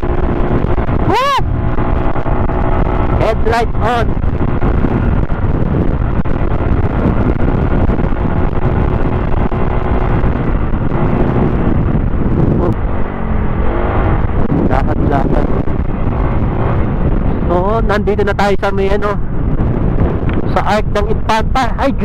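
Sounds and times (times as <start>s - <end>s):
motorcycle engine running: 0.0s - 22.0s
wind noise on microphone: 0.0s - 22.0s.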